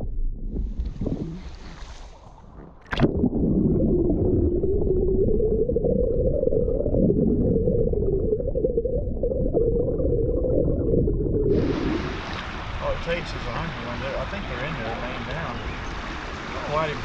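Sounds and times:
muffled underwater river rush: 0.0 - 17.0.

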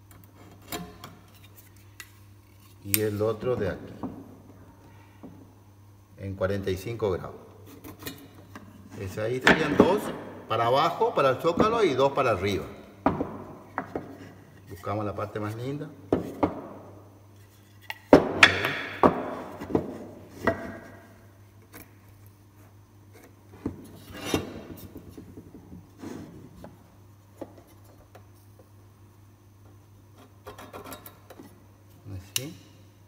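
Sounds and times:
wood pieces knocking on workbench: 9.4 - 10.3, 13.0 - 14.2, 16.1 - 16.9, 18.1 - 21.0
wood scraping slides: 26.0 - 26.6.

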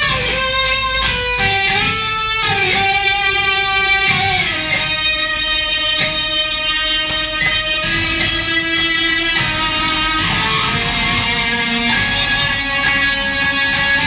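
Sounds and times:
overdriven electric guitar: 0.0 - 14.0.

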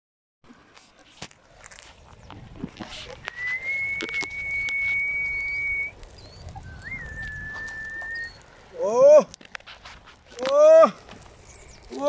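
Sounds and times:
person whistling: 3.3 - 5.9, 6.6 - 8.4.

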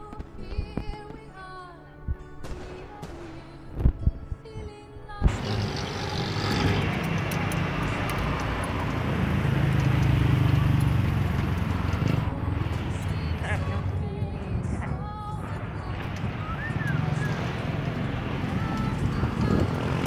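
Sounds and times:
music: 0.0 - 20.0
wind on microphone: 3.7 - 20.0
road noise: 5.2 - 20.0.

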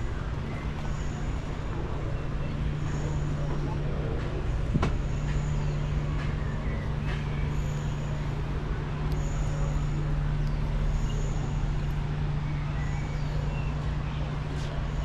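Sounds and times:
vehicle rumble: 0.0 - 15.0.

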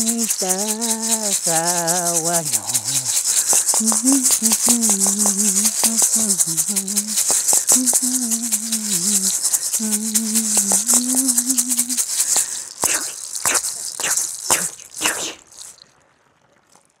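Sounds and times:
person humming chant note: 0.0 - 13.2
hand rattle shaking: 0.0 - 15.8.

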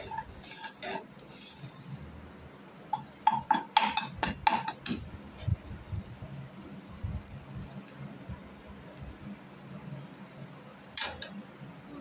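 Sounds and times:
spatula scraping a pan: 0.0 - 1.9
faint sizzle: 0.0 - 12.0
steady low hum: 0.0 - 12.0.

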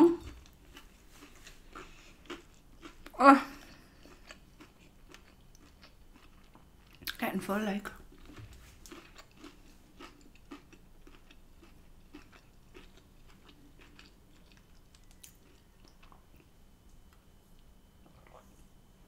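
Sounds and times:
chewing food: 0.0 - 7.2, 8.0 - 17.1.

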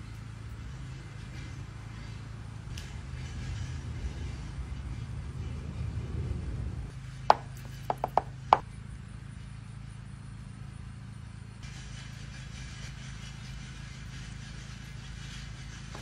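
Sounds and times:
sharp taps on cutting board: 7.3 - 8.3.

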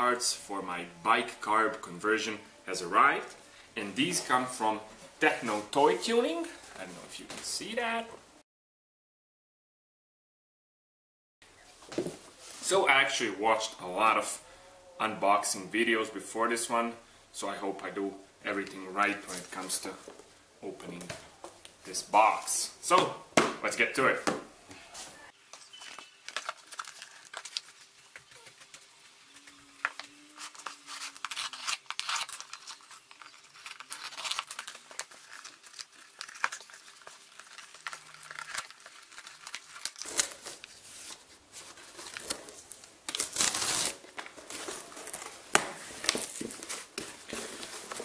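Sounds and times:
cardboard box tearing: 29.9 - 41.2, 41.8 - 48.0.

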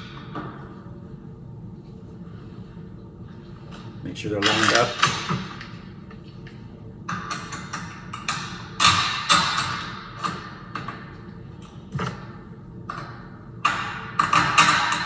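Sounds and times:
metal lock parts clicking and rattling: 4.4 - 5.4.

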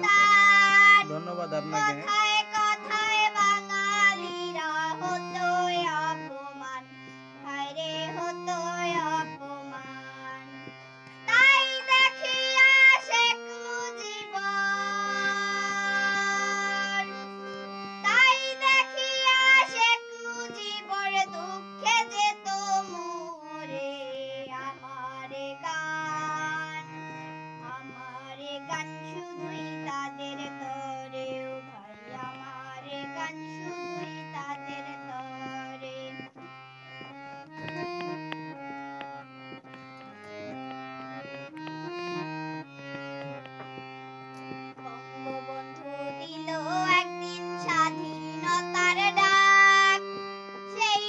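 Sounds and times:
girl singing: 0.0 - 1.1, 1.7 - 10.5, 11.3 - 17.2, 18.0 - 36.5, 44.8 - 51.0
harmonium chords: 0.0 - 51.0.

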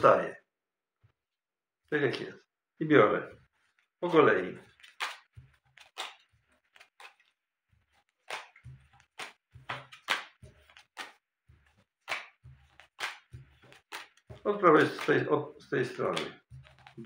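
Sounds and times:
playing cards clicking: 4.6 - 17.0.

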